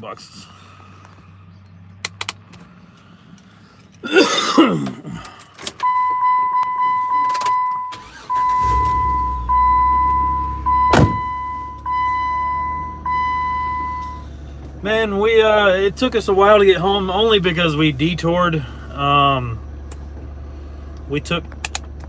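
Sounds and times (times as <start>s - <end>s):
car engine starting and running: 0.0s - 22.0s
car warning chime: 5.8s - 14.3s.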